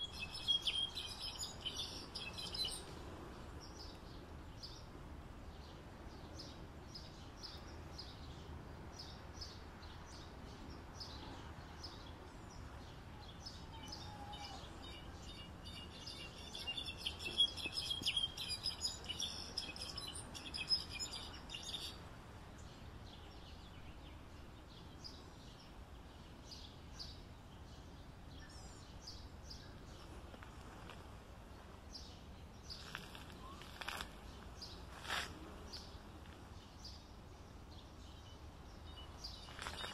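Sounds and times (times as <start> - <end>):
bird chirping and twittering: 0.0 - 3.0, 13.3 - 22.0
faint steady background hiss: 0.0 - 39.9.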